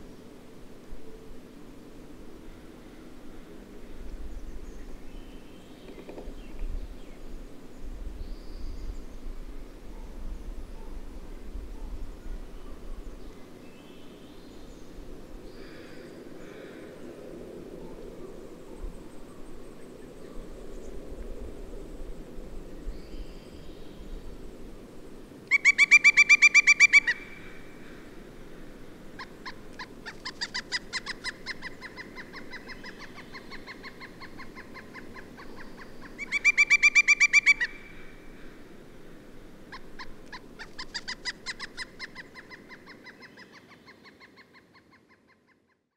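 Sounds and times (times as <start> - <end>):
woodpecker calling: 5.8 - 6.6, 25.5 - 27.6, 29.2 - 38.1, 39.7 - 45.7.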